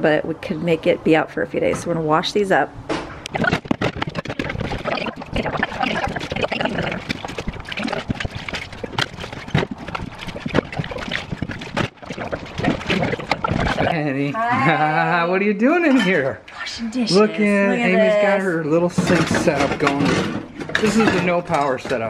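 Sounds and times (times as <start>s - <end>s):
water splashing and sloshing: 3.3s - 14.1s, 19.0s - 22.0s
dishes clinking against tub: 18.9s - 22.0s.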